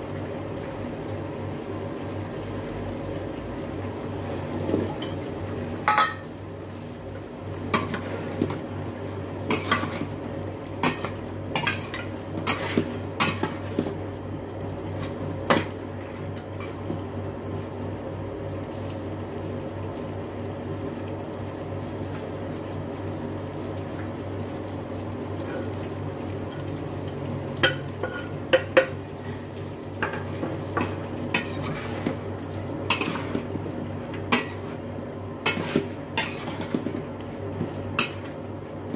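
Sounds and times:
utensils clinking on steel pot: 5.9 - 6.3.

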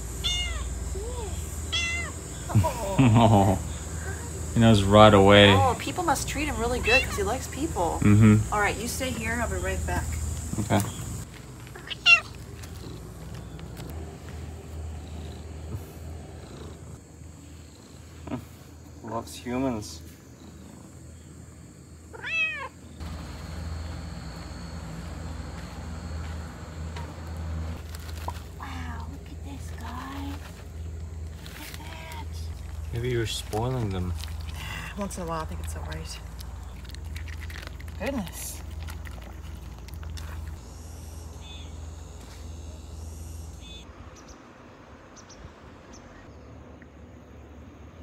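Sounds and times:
short insect chirps: 0.0 - 11.3, 39.7 - 44.3
insects trilling: 0.0 - 44.3
cat meowing: 0.2 - 0.7, 1.7 - 2.2, 11.8 - 12.4, 22.1 - 22.8.

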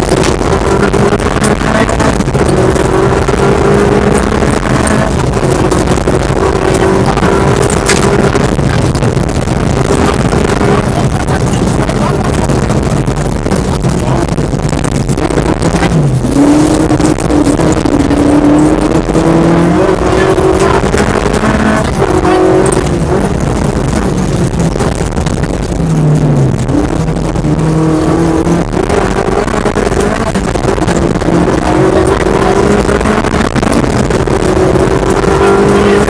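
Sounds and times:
car engine revving hard: 0.0 - 36.0
road and gravel rumble: 0.0 - 36.0.

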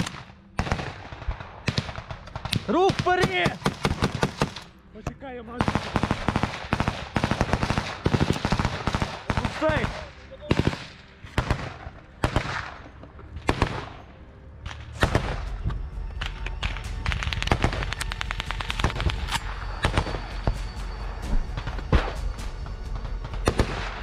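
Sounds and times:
gunfire shots: 0.0 - 4.6, 5.6 - 14.0, 14.8 - 15.6, 23.4 - 24.0
steady low rumble: 10.1 - 24.0.

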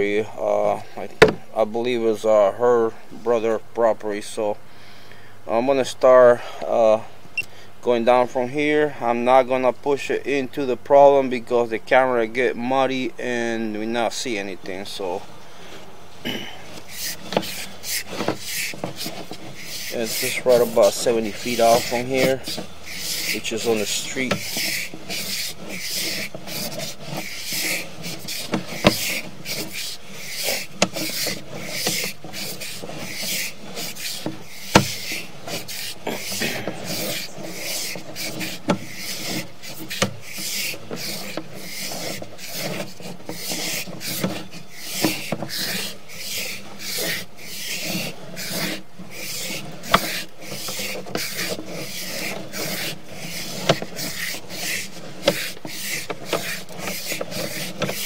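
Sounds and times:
cable rubbing and rasping in drain: 15.0 - 58.0.

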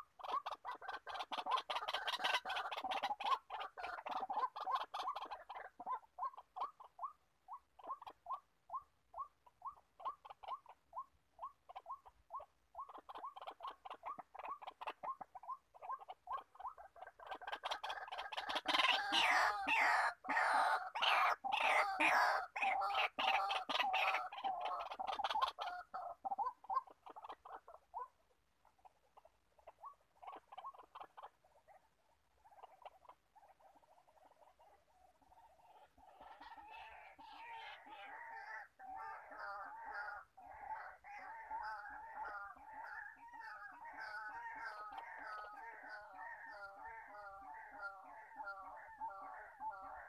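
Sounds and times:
waterhen calling harsh notes: 17.9 - 26.8.

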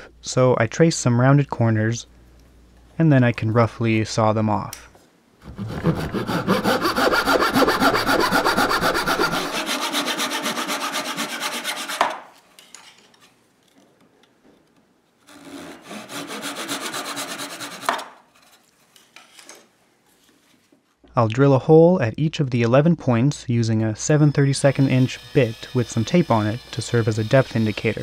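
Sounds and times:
hand saw cutting wood: 5.4 - 12.3, 15.3 - 18.2, 24.6 - 28.0.

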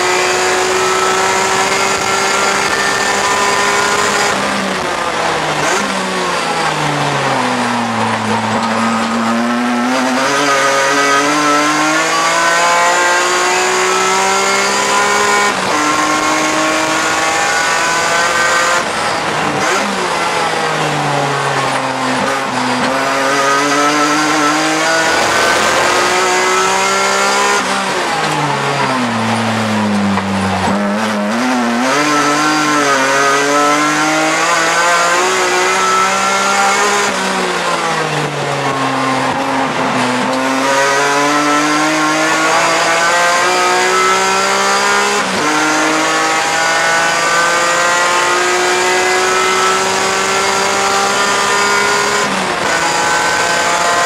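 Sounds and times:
race car engine revving: 0.0 - 54.0
quick gear upshifts: 0.1 - 37.1.

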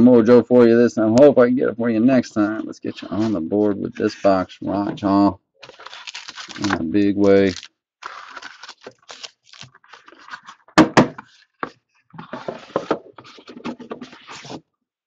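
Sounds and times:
cardboard and foil rustling: 5.6 - 10.6.

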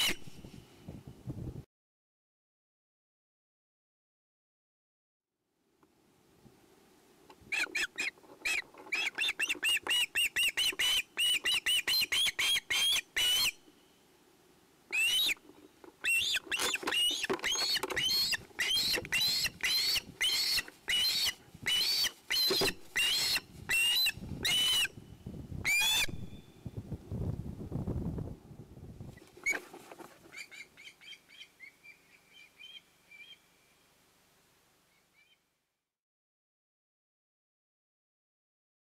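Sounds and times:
osprey squealing calls: 7.5 - 13.6, 14.9 - 15.4, 16.0 - 25.0, 25.7 - 26.4.

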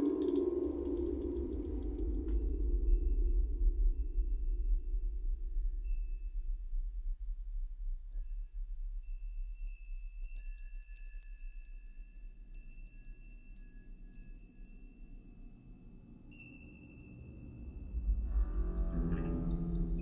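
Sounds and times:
low steady rumble: 0.0 - 11.2, 16.0 - 20.0
bell-like metallic chimes: 9.0 - 20.0.

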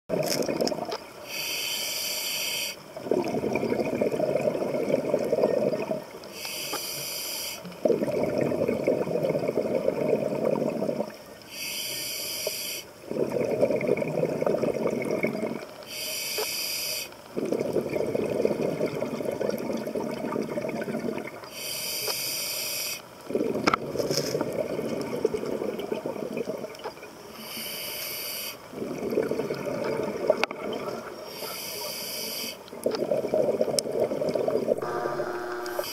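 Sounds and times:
regulator hiss on inhalation: 1.2 - 2.9, 6.3 - 7.7, 11.5 - 12.9, 15.9 - 17.2, 21.5 - 23.0, 27.3 - 28.7, 31.3 - 32.6
exhaust bubbles bubbling: 3.0 - 6.1, 7.8 - 11.2, 13.1 - 15.7, 17.3 - 21.4, 23.3 - 26.8, 28.7 - 31.1, 32.8 - 35.9.

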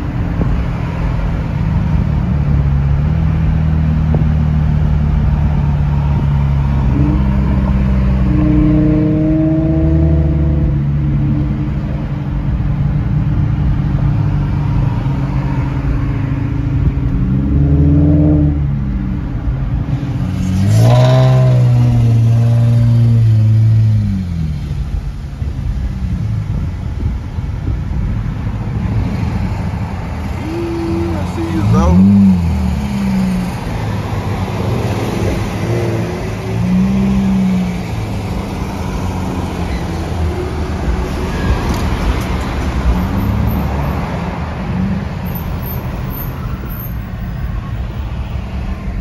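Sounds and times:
car engine and tyre noise: 0.0 - 49.0
road noise: 0.0 - 49.0
car engine revving: 28.8 - 44.0.

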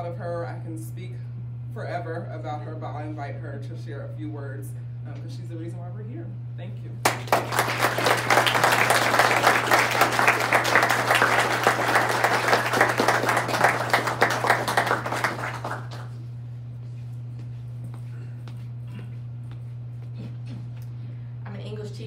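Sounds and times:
audience applauding: 7.0 - 16.3.

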